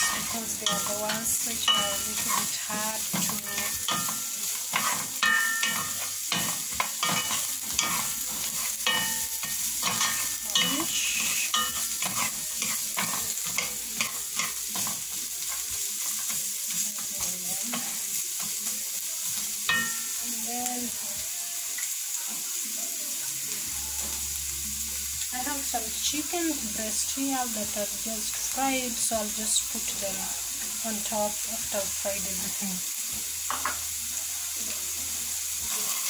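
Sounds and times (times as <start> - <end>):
wooden spoon scraping a pan: 0.0 - 18.7
carrots sizzling in oil: 0.0 - 36.0.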